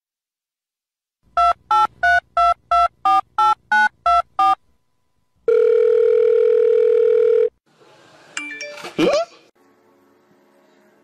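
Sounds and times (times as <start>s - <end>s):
long steady phone tone: 5.4s - 7.6s.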